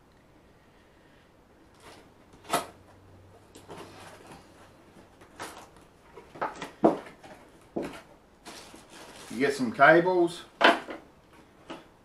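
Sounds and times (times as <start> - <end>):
scrapes rustles and knocks: 1.7 - 9.6.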